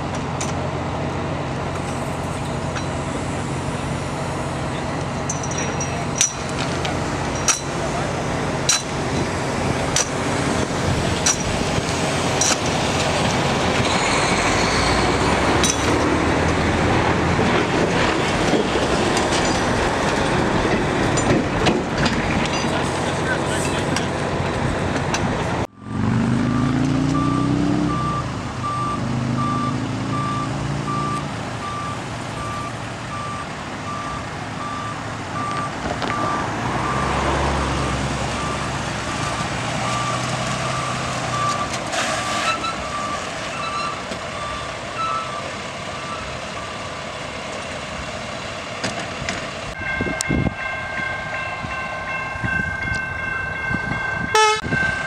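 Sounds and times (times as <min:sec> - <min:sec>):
truck engine running: 0:00.0 - 0:14.0
reversing alarm beeping: 0:25.7 - 0:41.7, 0:42.5 - 0:46.8, 0:49.8 - 0:55.0
horn sounding: 0:54.3 - 0:55.0.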